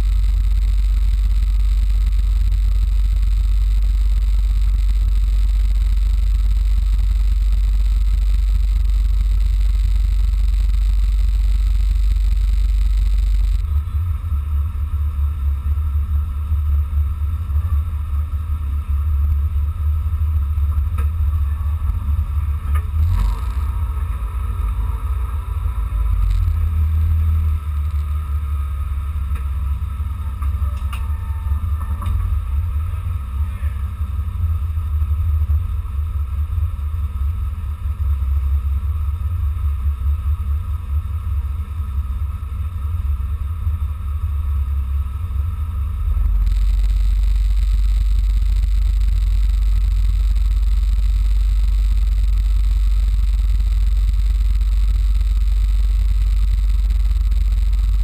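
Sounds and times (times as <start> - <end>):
race car engine droning: 0.0 - 58.0.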